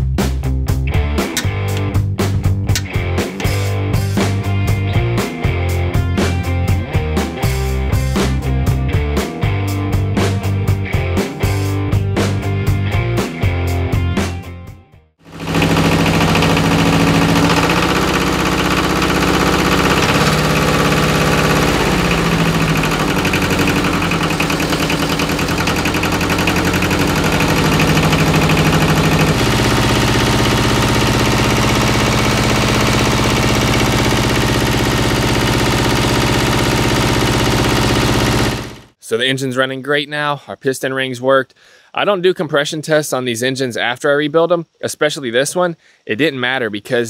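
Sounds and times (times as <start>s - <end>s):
tractor diesel engine running: 15.3s - 39.0s.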